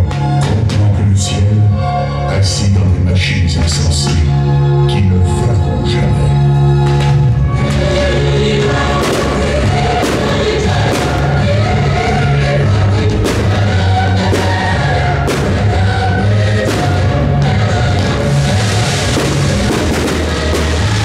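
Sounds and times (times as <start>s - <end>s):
choral music with bass line: 0.0s - 21.0s
sharp hits: 9.0s - 11.5s, 13.2s - 21.0s.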